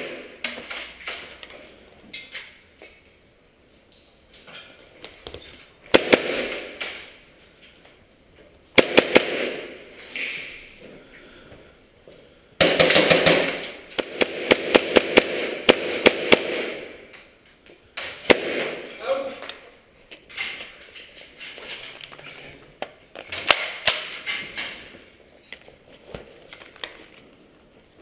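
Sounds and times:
airsoft guns firing: 0.0 - 0.7, 5.9 - 7.2, 8.7 - 9.9, 12.6 - 17.1, 18.0 - 19.2.

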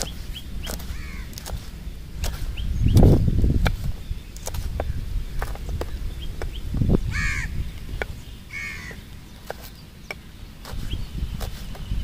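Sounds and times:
crow cawing: 0.9 - 1.4, 7.1 - 7.6, 8.5 - 9.0.

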